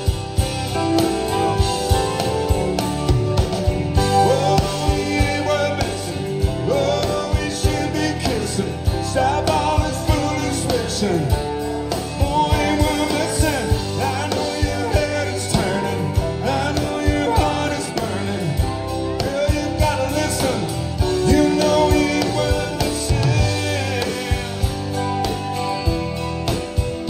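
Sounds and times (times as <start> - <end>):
country band playing: 0.0 - 27.0
man singing: 4.0 - 25.5.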